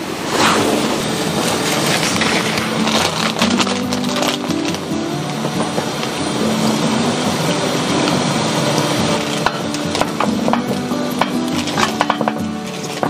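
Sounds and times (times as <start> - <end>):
water boiling in a saucepan: 2.6 - 13.0.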